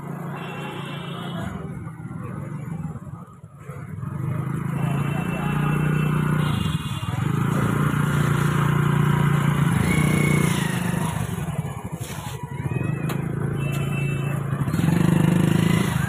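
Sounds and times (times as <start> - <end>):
motorcycle engines in traffic: 0.0 - 16.0
people's voices: 9.6 - 16.0.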